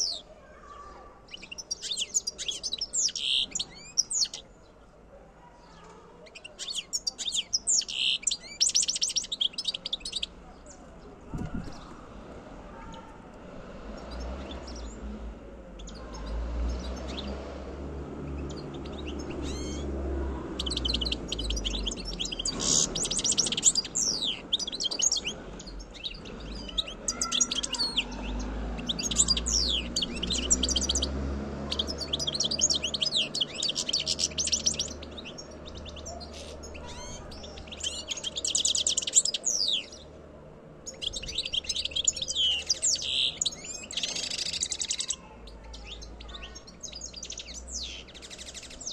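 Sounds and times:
goldfinch twittering and trilling: 0:01.3 - 0:04.4, 0:06.3 - 0:10.3, 0:18.4 - 0:19.9, 0:20.6 - 0:40.0, 0:40.8 - 0:48.9.

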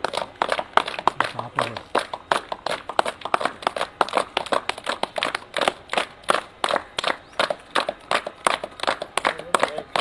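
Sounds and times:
people clapping: 0:00.0 - 0:10.0.

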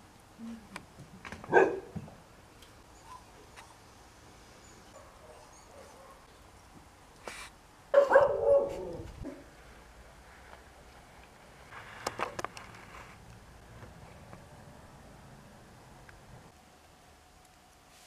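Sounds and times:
dog barking: 0:01.5 - 0:02.0, 0:07.9 - 0:08.9.

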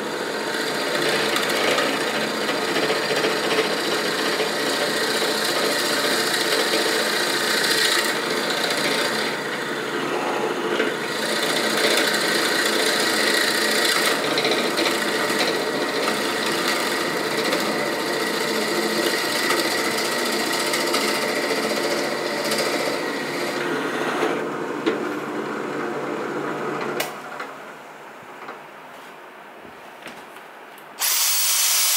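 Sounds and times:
drill press boring into wood: 0:00.0 - 0:24.4, 0:31.0 - 0:31.9.

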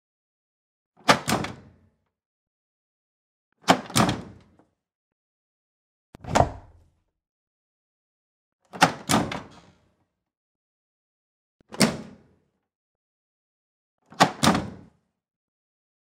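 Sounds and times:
appliance door clunking shut: 0:06.2 - 0:06.8.

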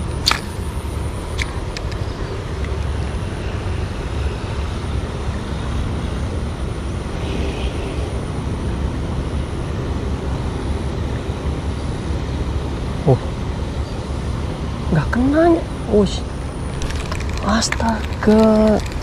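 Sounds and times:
steady low rumbling noise: 0:00.0 - 0:19.0.

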